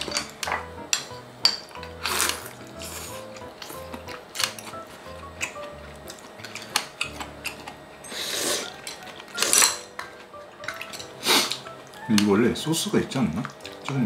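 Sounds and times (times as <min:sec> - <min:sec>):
cutlery clinking on dishes: 0:00.0 - 0:02.4, 0:06.4 - 0:11.6
quiet background music: 0:00.0 - 0:14.0.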